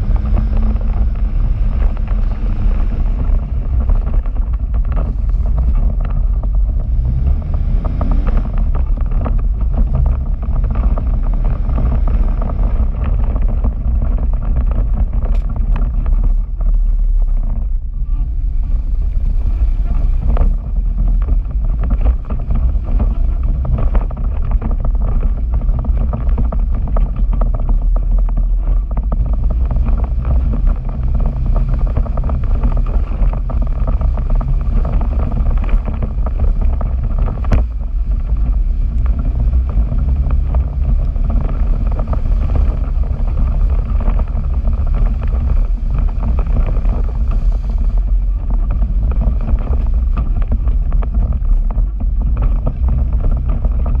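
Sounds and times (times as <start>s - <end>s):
vehicle engine running: 0.0s - 54.0s
wind buffeting microphone: 0.0s - 54.0s.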